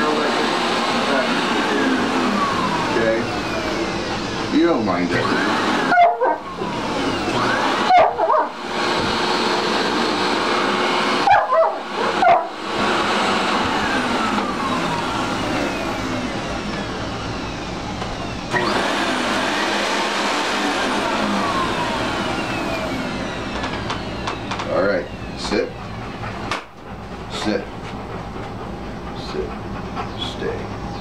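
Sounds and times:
vacuum cleaner running: 0.0s - 31.0s
dog barking and whining: 5.2s - 9.2s, 10.5s - 19.4s.

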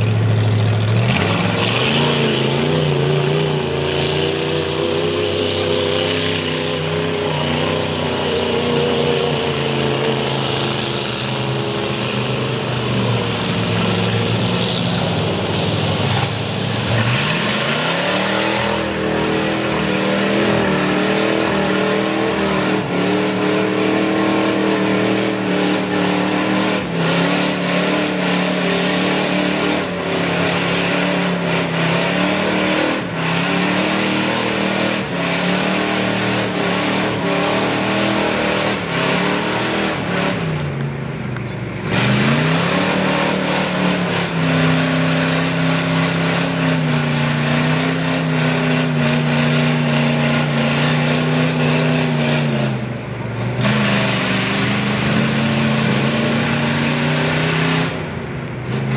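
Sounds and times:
truck engine revving: 0.0s - 58.9s.

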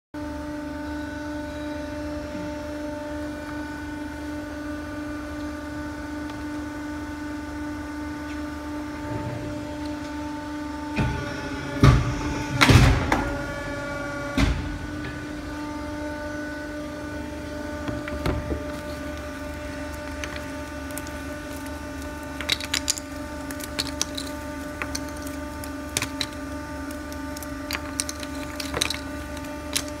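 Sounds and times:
press motor humming: 8.7s - 30.0s.

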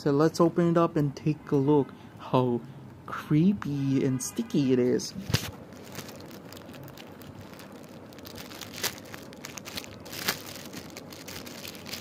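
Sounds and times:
plastic packaging crinkling: 5.2s - 12.0s.

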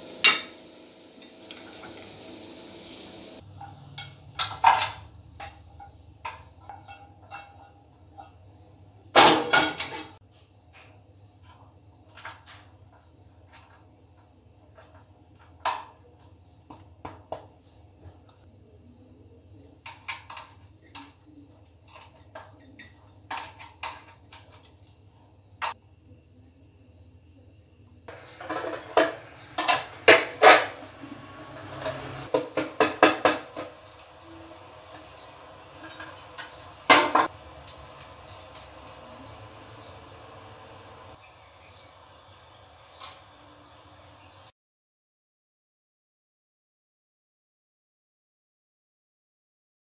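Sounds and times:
metal scraping on tin: 28.1s - 33.8s, 35.7s - 37.3s.

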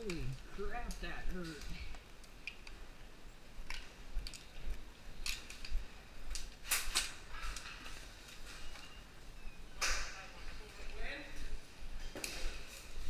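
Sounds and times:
sharp clicks and snaps: 0.0s - 2.8s, 3.6s - 7.8s.

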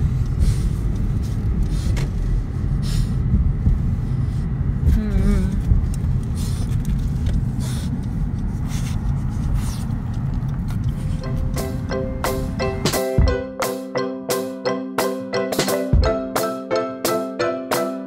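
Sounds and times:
car road and engine rumble: 0.0s - 13.4s.

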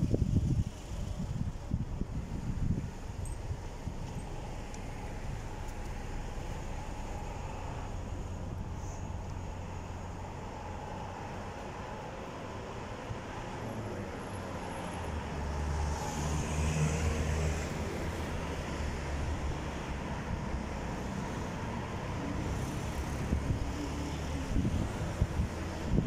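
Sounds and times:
road noise: 0.0s - 26.0s.

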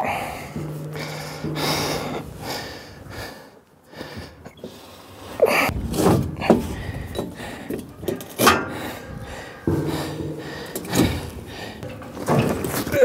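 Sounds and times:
steel panels clanking: 0.0s - 3.1s, 5.7s - 13.0s
steady low hum: 0.0s - 3.5s, 5.7s - 12.2s.

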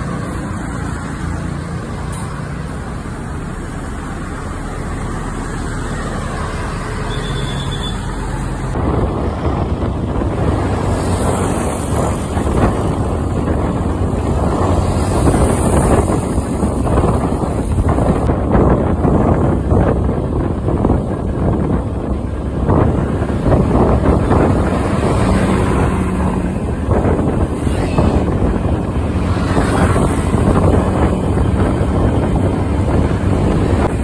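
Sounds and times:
bus engine humming: 0.0s - 34.0s
road noise: 0.0s - 34.0s
wind buffeting microphone: 7.8s - 34.0s.

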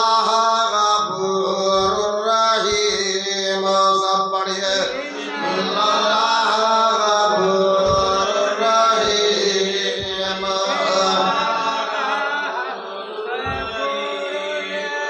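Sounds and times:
devotional chanting: 0.0s - 15.0s
dull low thumps: 1.7s - 2.1s, 7.8s - 10.7s, 13.4s - 13.8s.

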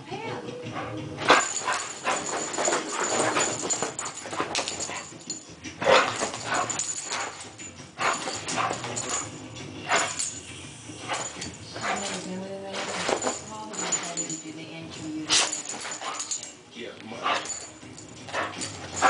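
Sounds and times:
dog scrambling on cushions: 1.2s - 10.4s, 11.0s - 14.4s, 15.3s - 16.5s, 17.2s - 19.0s.

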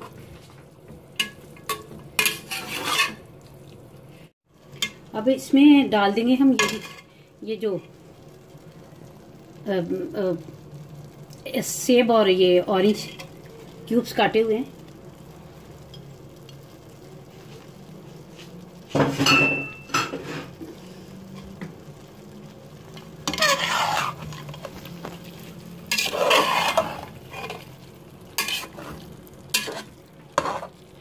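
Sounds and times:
metal spatula scraping rice in pot: 1.7s - 3.3s, 6.6s - 7.1s, 23.2s - 27.8s, 28.4s - 30.8s.

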